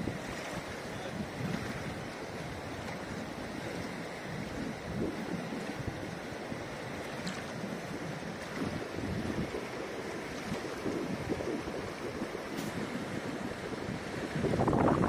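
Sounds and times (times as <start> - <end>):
river rushing over stones: 0.0 - 15.0
wind buffeting microphone: 0.0 - 15.0.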